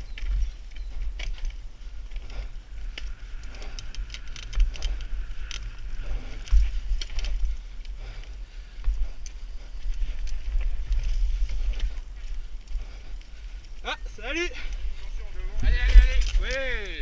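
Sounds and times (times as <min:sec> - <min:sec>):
bike rattles and knocks: 0:00.0 - 0:08.0
wind rumble on microphone: 0:00.0 - 0:17.0.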